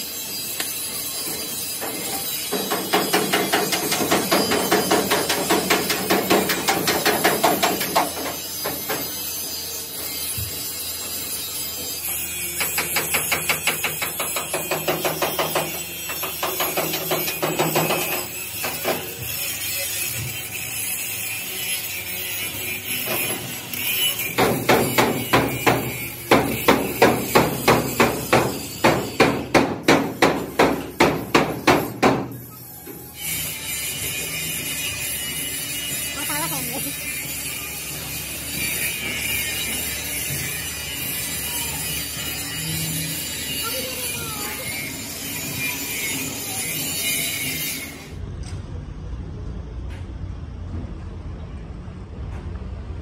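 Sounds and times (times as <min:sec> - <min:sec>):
hammer beating sheet steel: 0:01.2 - 0:09.2, 0:12.2 - 0:20.5, 0:22.8 - 0:32.5.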